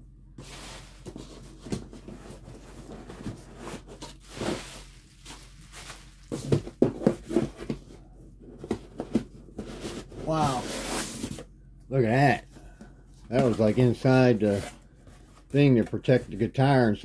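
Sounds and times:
cardboard box scraping and rustling: 0.4 - 11.4, 13.3 - 16.2
knocks and thumps on box: 6.3 - 7.9, 8.6 - 10.1.

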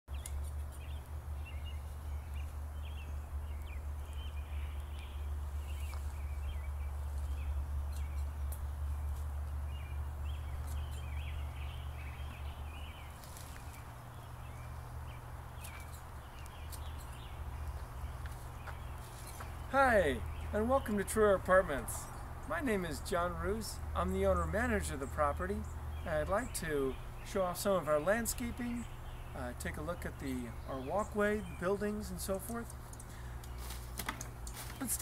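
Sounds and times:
steady low rumble: 0.1 - 34.8
small birds chirping: 0.1 - 35.0
faint clicks: 32.6 - 34.7.

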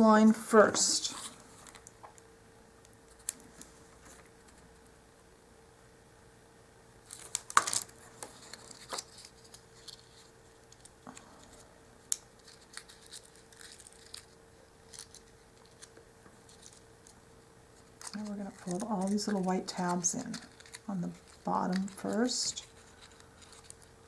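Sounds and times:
paper box rustling and clicking: 7.1 - 10.9, 17.8 - 24.0.

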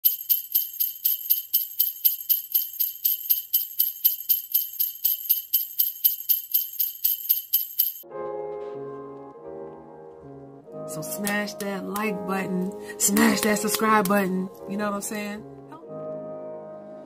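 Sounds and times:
jingle bells shaken: 0.0 - 8.0.

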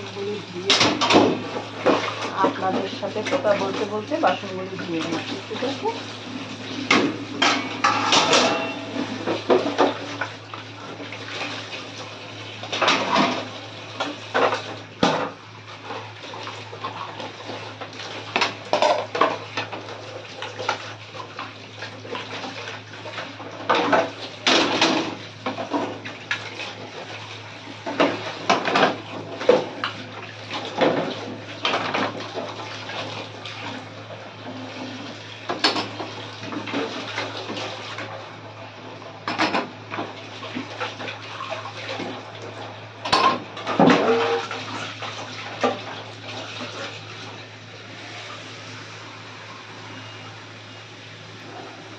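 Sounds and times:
running splashing water: 0.0 - 51.9
metal pots clattering: 6.8 - 10.0, 43.0 - 44.5.

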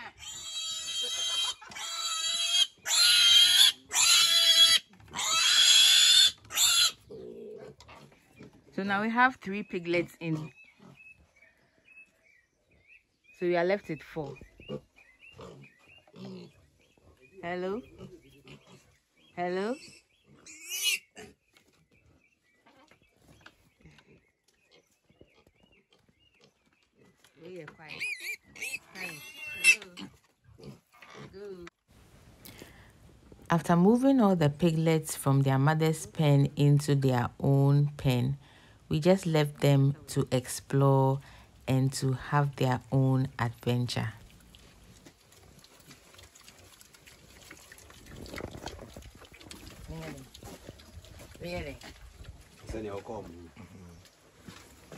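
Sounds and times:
piglet squealing: 0.0 - 7.0, 19.8 - 21.1, 27.9 - 30.1.

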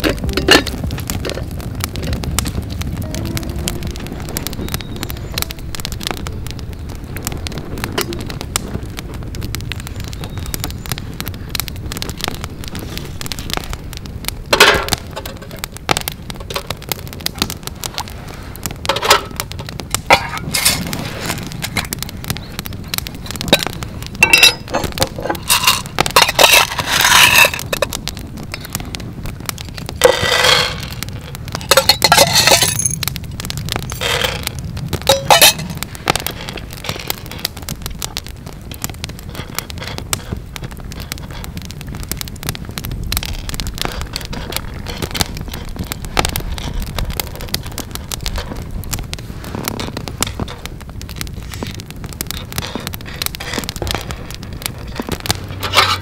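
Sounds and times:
campfire crackling and popping: 0.0 - 56.0
coffee beans rattling in metal tin: 24.2 - 27.9, 30.0 - 30.9, 31.6 - 33.0, 35.1 - 35.8.

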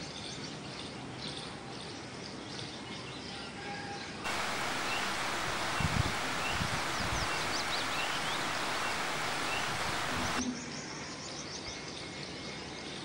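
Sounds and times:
small birds chirping: 4.3 - 10.4
steady hiss: 4.3 - 10.4.

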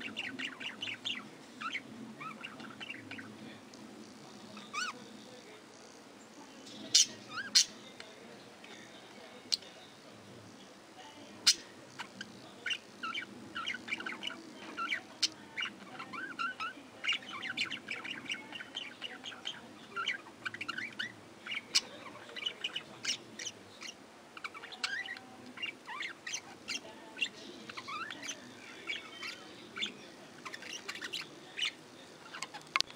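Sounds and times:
budgerigars chattering: 0.0 - 3.3, 4.6 - 5.0, 6.8 - 7.8, 11.4 - 32.9.

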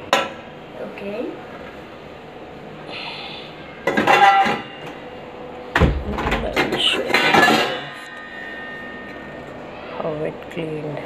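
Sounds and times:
heavier metal knock: 5.8 - 6.7.

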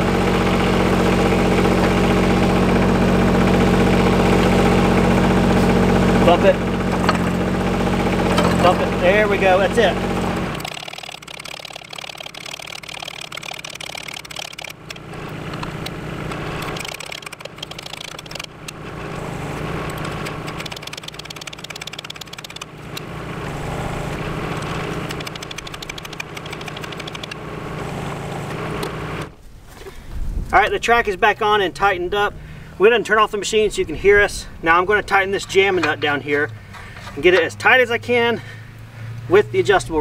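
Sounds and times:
excavator diesel engine running: 0.0 - 29.4.

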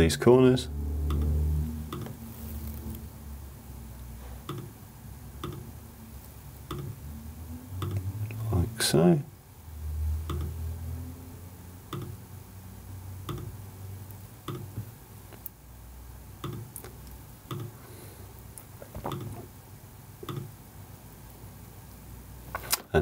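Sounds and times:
low hum: 0.4 - 15.0
computer mouse clicking: 4.5 - 4.7, 5.4 - 5.6, 10.3 - 10.6.

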